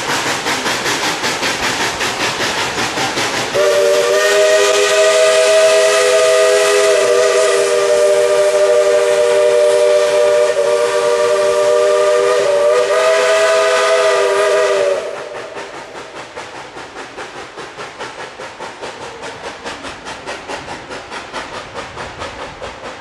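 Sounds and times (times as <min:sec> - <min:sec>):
steam exhaust beats: 0:00.0 - 0:23.0
steam locomotive chime whistle: 0:03.6 - 0:15.6.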